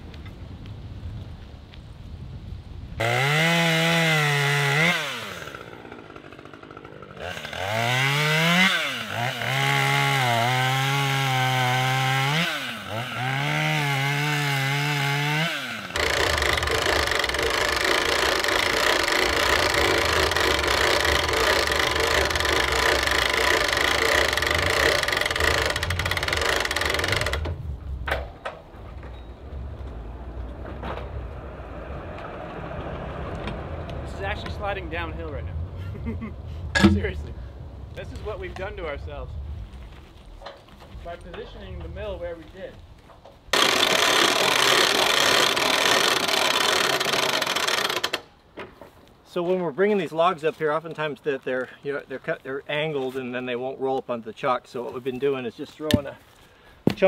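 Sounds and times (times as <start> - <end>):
small saw engine running: 3.0 - 27.6, 43.5 - 48.2
log dragging over ground: 5.2 - 28.0, 28.6 - 43.5, 48.7 - 57.0
vehicle engine revving: 15.3 - 27.6.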